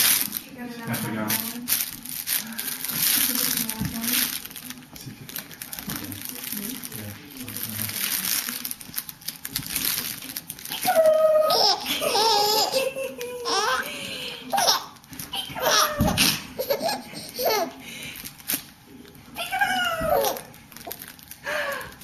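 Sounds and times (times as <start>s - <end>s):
baby laughing and squealing: 10.7s - 13.9s, 14.5s - 17.8s, 19.4s - 20.5s.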